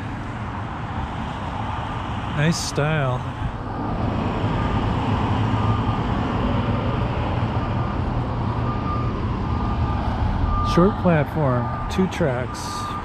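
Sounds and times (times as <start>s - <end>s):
engine humming: 0.0s - 13.0s
road traffic noise: 0.0s - 13.0s.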